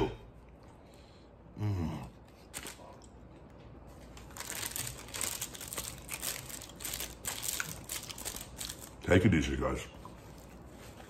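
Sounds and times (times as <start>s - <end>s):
man's low vocal sound: 1.5s - 2.2s
paper crinkling: 2.4s - 3.0s, 3.8s - 9.2s.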